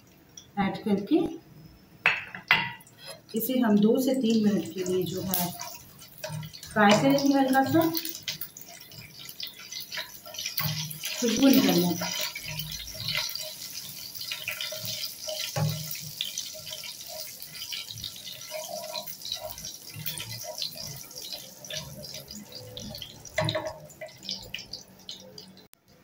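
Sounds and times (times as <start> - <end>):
spices sizzling in hot oil: 0.0 - 25.8
spatula scraping and knocking pan: 4.7 - 24.4.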